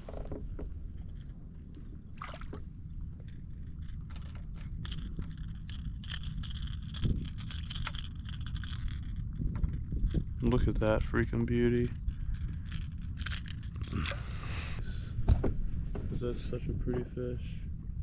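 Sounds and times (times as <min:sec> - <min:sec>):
low rumble: 0:00.0 - 0:18.0
water splashes and drips: 0:02.2 - 0:02.7.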